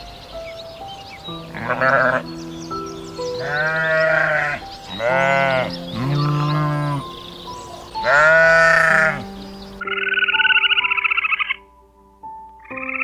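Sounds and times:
background music with held notes: 0:00.0 - 0:13.0
sheep bleating: 0:01.5 - 0:02.3, 0:03.4 - 0:07.1, 0:08.0 - 0:09.3.

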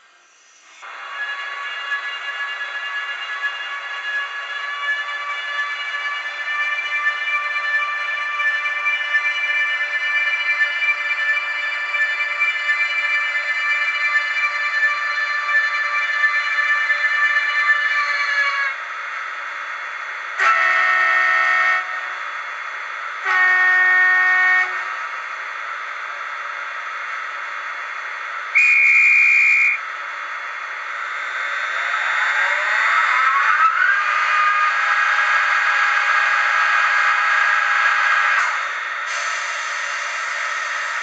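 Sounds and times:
multi-tone horn blasts: 0:20.4 - 0:22.1, 0:23.2 - 0:25.0, 0:28.6 - 0:29.8
whine rising in pitch: 0:24.3 - 0:38.8.

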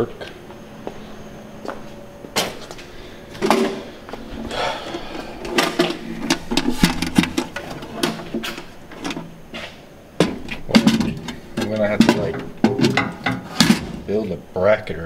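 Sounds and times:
clicks and knocks of handling: 0:04.9 - 0:13.8.

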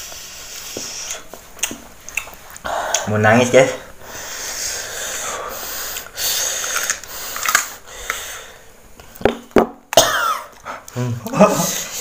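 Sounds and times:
heavy breathing through mouth: 0:02.6 - 0:03.1, 0:03.9 - 0:08.7.

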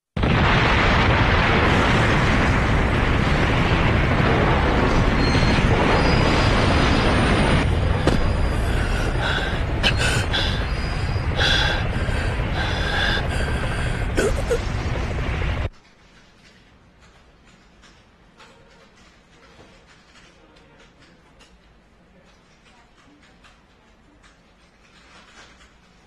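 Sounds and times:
explosion rumbling roar: 0:00.2 - 0:15.7.

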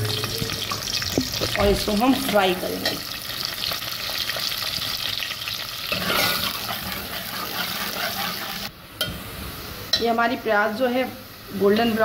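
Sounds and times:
onions sizzling in hot oil: 0:00.0 - 0:12.0
steel ladle stirring in pot: 0:05.9 - 0:08.7.

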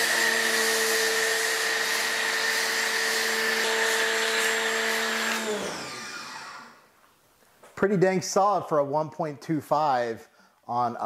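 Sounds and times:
pressure washer motor hum: 0:00.0 - 0:06.8.

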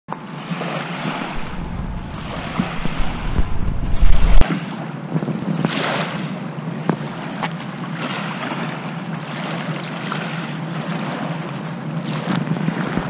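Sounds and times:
lake waves washing onto shore: 0:00.4 - 0:04.9, 0:08.0 - 0:13.0
wind buffeting microphone: 0:01.0 - 0:04.4.

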